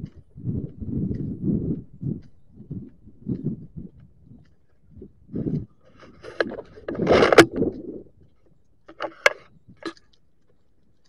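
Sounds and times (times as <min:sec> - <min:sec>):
rustling scrape: 0:05.9 - 0:08.0.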